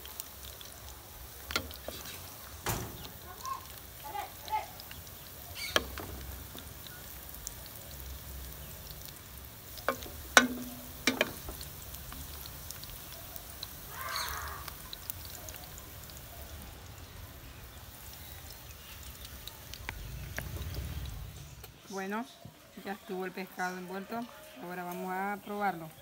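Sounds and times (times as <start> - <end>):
wooden spoon scraping metal pot: 1.5 - 2.4, 5.6 - 6.8, 9.8 - 11.8.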